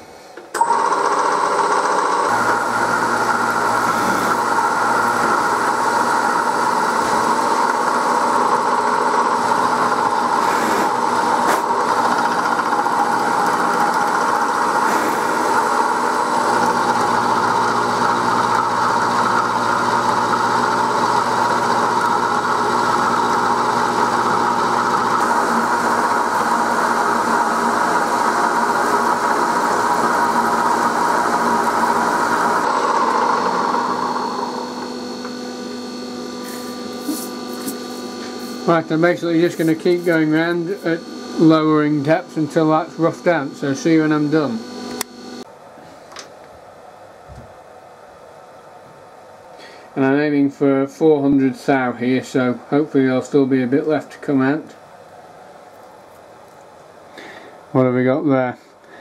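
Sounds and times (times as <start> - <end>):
milling machine whining: 0.0 - 45.5.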